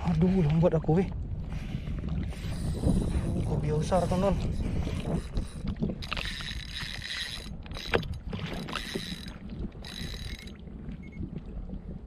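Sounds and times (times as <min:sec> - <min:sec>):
water noise: 0:00.0 - 0:12.0
wind: 0:00.0 - 0:12.0
fishing reel whirring: 0:05.0 - 0:10.6.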